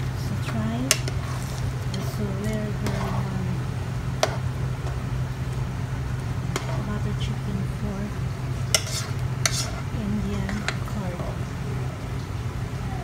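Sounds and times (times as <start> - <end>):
spatula stirring curry in pan: 0.0 - 5.2, 6.3 - 7.0, 8.3 - 11.3
low hum: 0.0 - 13.0.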